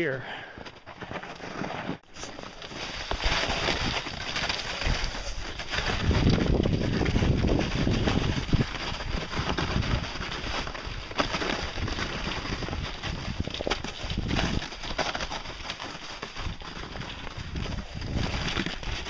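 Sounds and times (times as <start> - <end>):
plastic sled scraping: 0.6 - 19.0
footsteps crunching on snow: 0.8 - 19.0
wind rumble on microphone: 4.8 - 10.6, 17.2 - 19.0.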